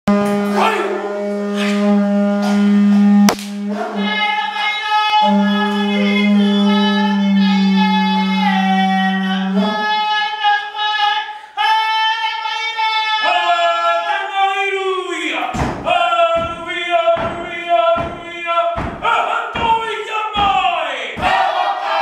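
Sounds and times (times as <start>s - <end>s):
conch-shell trumpet low note: 0.1s - 10.0s.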